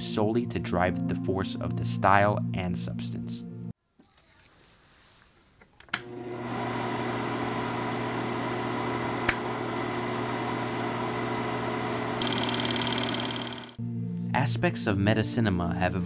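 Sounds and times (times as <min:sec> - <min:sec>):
film projector motor humming: 0:06.0 - 0:13.8
projector switch click: 0:09.2 - 0:09.5
fast high ticking: 0:12.2 - 0:13.8.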